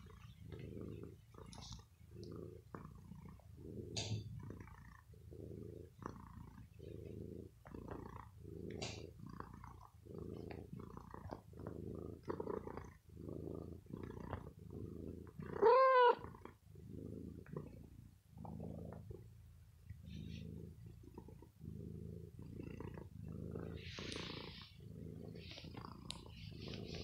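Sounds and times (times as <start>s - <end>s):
cat purring: 0.0s - 27.0s
cat meowing: 15.6s - 16.2s.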